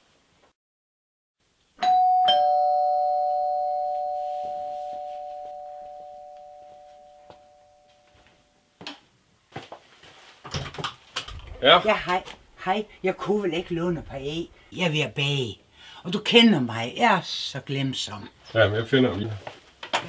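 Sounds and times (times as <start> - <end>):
two-tone doorbell chime: 1.8 - 8.4.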